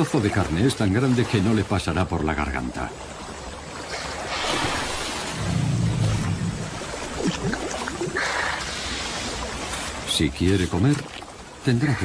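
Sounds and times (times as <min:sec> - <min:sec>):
water splashing and churning: 0:00.0 - 0:12.0
low rumble: 0:05.3 - 0:07.6.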